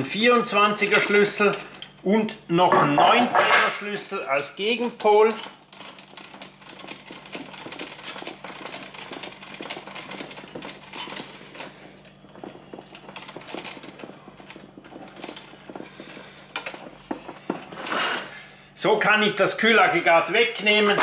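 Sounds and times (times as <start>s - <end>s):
screw couplings clicking and rattling: 0.6s - 2.0s, 3.4s - 18.2s.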